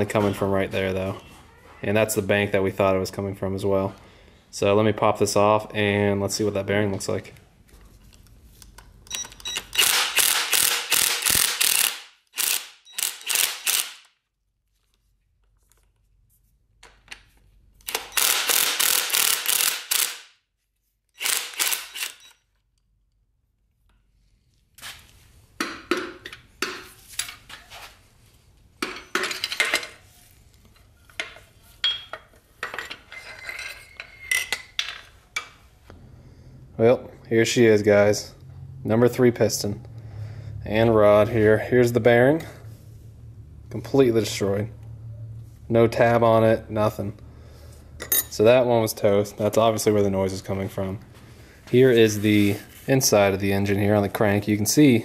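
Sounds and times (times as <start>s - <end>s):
ratchet wrench clicking: 9.1s - 14.1s, 17.8s - 20.2s, 21.2s - 22.4s.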